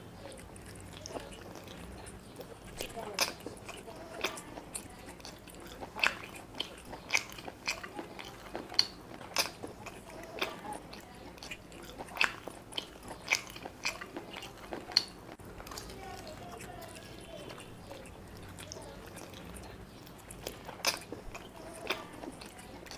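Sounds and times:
chewing and biting food: 0.0 - 22.9
wet mouth smacks: 20.3 - 21.5.

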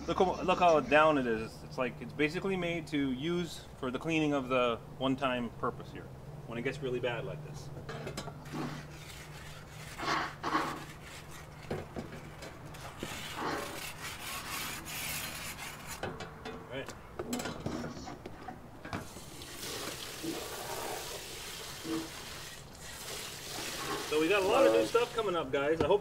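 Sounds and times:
stone scrubbing a grill grate: 8.4 - 16.2, 19.1 - 25.3.

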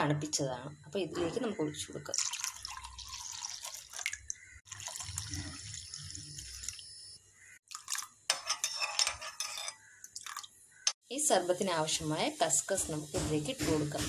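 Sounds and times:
milk pouring into glass bowl: 2.1 - 6.8.

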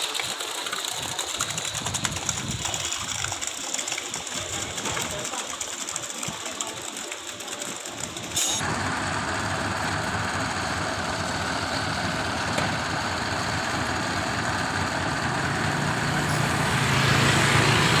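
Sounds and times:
diesel truck engine running: 8.0 - 18.0
river water running: 8.6 - 18.0.

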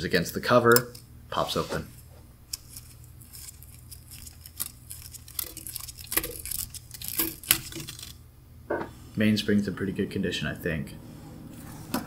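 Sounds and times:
low steady hum: 0.0 - 12.0
clicks and rustles of handling: 1.6 - 8.2.

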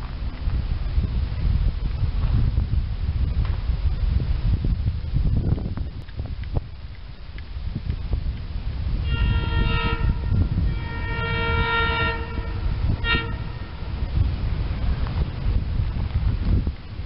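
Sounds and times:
train low rumble: 0.0 - 17.0
train air horn blasts: 9.0 - 14.1.

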